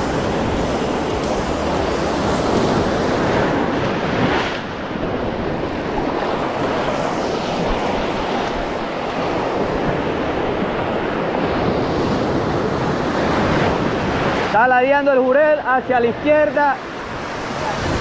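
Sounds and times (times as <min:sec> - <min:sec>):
surf washing over rocks: 0:00.0 - 0:18.0
wind buffeting microphone: 0:17.1 - 0:18.0.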